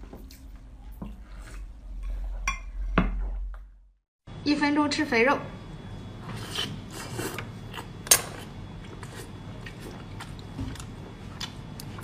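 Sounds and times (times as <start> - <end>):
person chewing with mouth clicks: 8.8 - 12.0.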